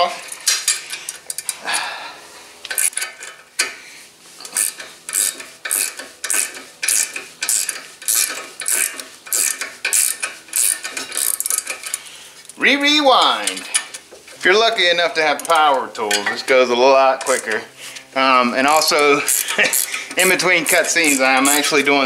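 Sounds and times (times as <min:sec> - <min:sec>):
ratchet pawl clicking: 0:02.6 - 0:03.8, 0:04.4 - 0:12.6, 0:13.3 - 0:16.3, 0:17.2 - 0:17.7, 0:18.6 - 0:22.0
metal rubbing: 0:02.6 - 0:22.0.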